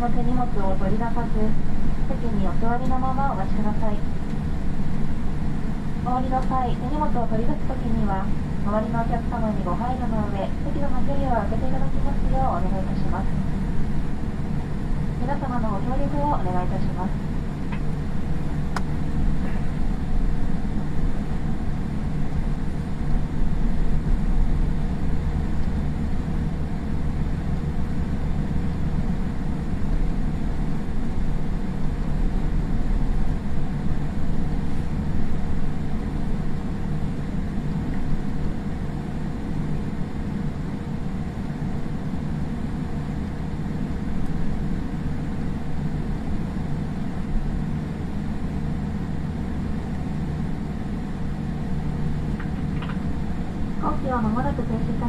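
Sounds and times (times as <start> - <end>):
faint steady hum: 0.0 - 55.0
low airliner cabin rumble: 0.0 - 55.0.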